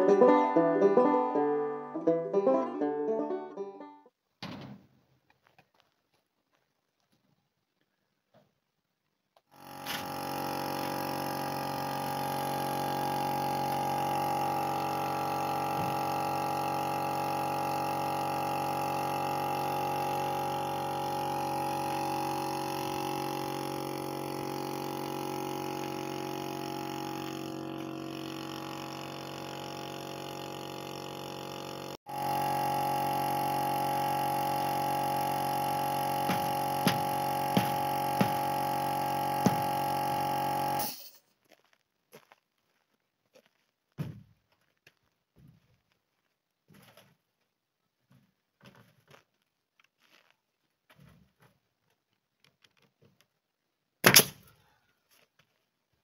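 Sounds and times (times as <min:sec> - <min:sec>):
background music of sustained notes: 0:00.0 - 0:04.0.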